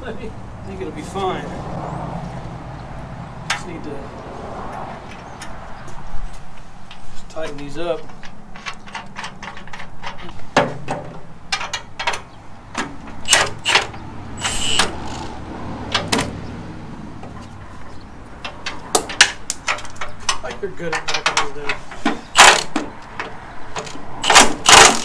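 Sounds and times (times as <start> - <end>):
impact wrench burst: 13.2 - 15.4, 22.3 - 22.8, 24.2 - 25.0.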